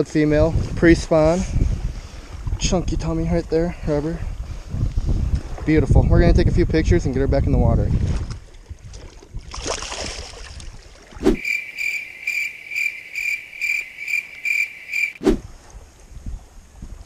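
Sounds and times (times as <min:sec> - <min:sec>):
water splashing: 0:08.0 - 0:15.8.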